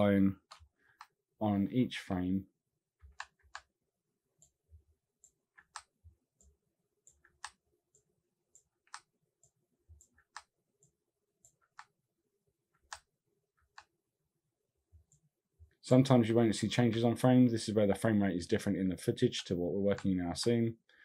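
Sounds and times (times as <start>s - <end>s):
mouse and keyboard clicks: 3.0s - 3.7s, 5.2s - 6.5s.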